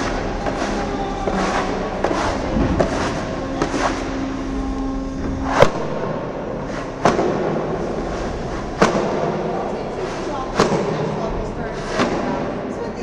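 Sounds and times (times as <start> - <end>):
steady background din: 0.0 - 13.0
sharp cracks: 6.9 - 9.6.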